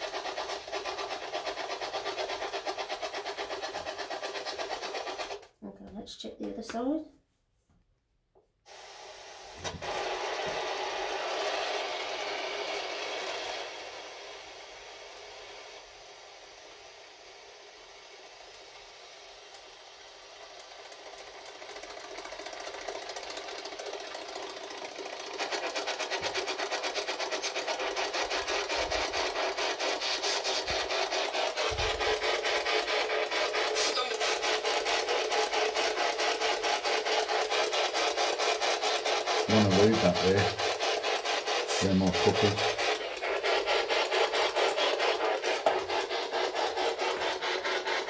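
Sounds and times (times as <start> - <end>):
pulsing radio static: 33.2 - 35.1
voice-like fragments: 33.6 - 34.6.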